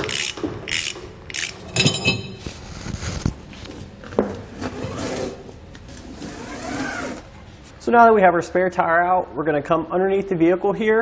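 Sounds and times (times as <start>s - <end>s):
winch ratcheting clicks: 0.0s - 1.7s
metal rattles and knocks: 1.6s - 2.4s.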